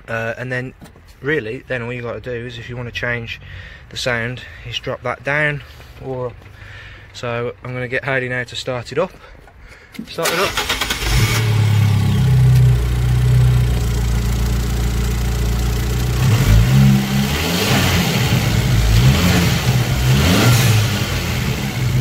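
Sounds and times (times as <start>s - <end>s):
car engine revving: 10.4s - 22.0s.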